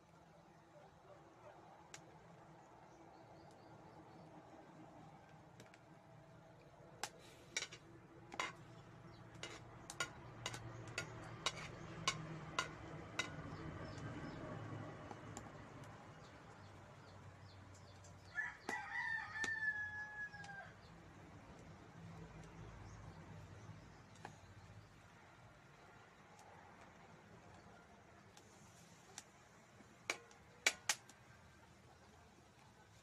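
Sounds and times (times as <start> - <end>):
rooster crowing: 18.3 - 20.8.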